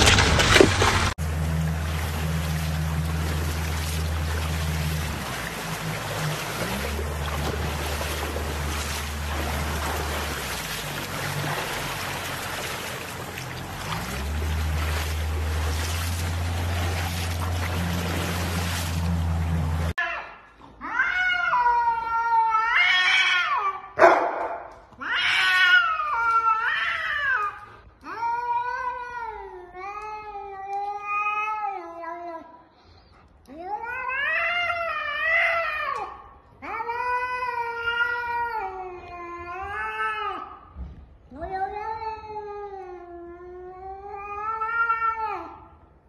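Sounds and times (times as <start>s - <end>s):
cat yowling: 20.0s - 24.0s, 25.0s - 29.5s, 44.0s - 45.6s.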